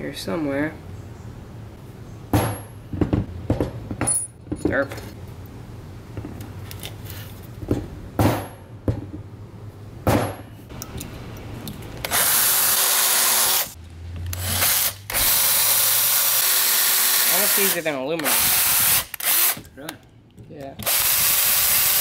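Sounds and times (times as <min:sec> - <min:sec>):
knocks on metal: 0:02.3 - 0:04.8, 0:07.7 - 0:09.2, 0:10.0 - 0:10.5
cordless drill boring into metal: 0:12.0 - 0:13.7, 0:14.3 - 0:19.6, 0:20.8 - 0:22.0.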